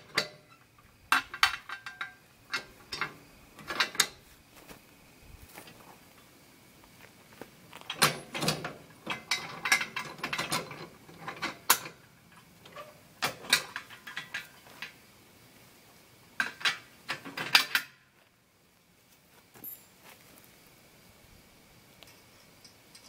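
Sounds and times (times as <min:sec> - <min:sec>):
metal clicks and clanks: 0:00.0 - 0:04.2, 0:07.8 - 0:15.0, 0:16.4 - 0:18.0, 0:22.0 - 0:23.0.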